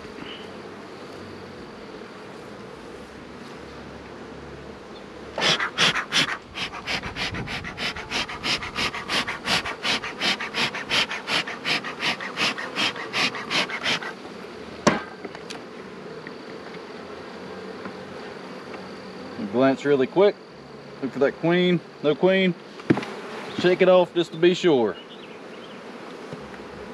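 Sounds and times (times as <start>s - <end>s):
bellows hissing puffs: 5.4s - 14.3s.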